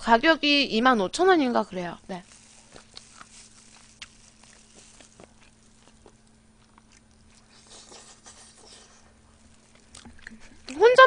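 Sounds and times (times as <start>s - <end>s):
soft chewing: 2.0s - 11.0s.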